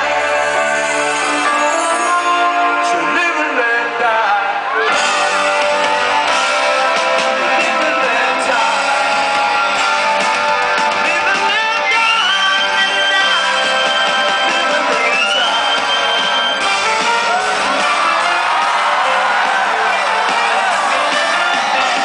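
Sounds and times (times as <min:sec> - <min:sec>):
person singing: 0:00.0 - 0:16.0
guitar: 0:00.0 - 0:22.0
live rock band over loudspeaker: 0:00.0 - 0:22.0.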